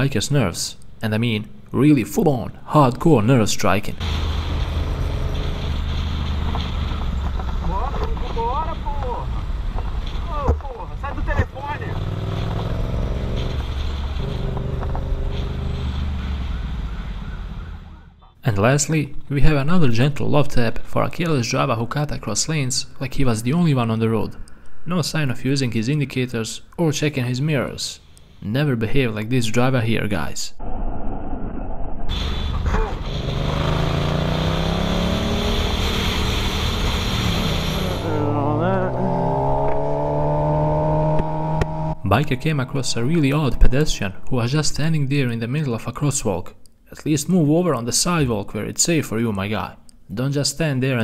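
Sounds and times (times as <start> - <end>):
road and wind noise: 0.0 - 18.4, 30.6 - 46.3
motorcycle engine accelerating: 4.0 - 8.3, 11.4 - 18.0, 32.7 - 43.8
motorcycle engine running: 11.4 - 16.6, 37.9 - 42.0.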